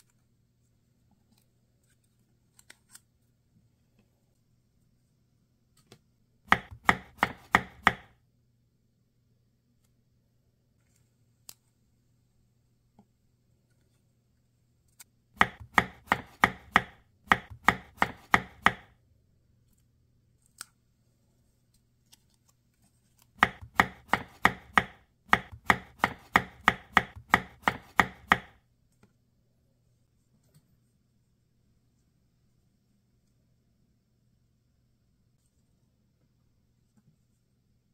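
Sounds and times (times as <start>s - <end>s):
knife chopping on cutting board: 6.5s - 8.1s, 15.4s - 18.9s, 23.4s - 28.6s.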